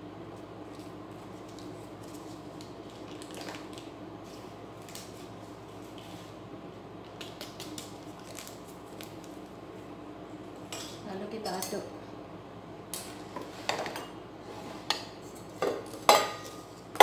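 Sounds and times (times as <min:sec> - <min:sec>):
steady low hum: 0:00.0 - 0:17.0
packet crinkling and rustling: 0:00.8 - 0:06.1, 0:07.0 - 0:09.6.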